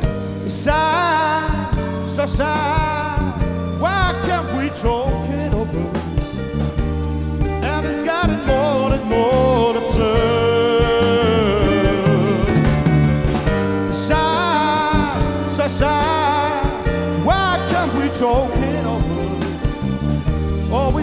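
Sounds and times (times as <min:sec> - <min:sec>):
live band playing: 0:00.0 - 0:21.0
vibrato lead melody: 0:00.0 - 0:21.0.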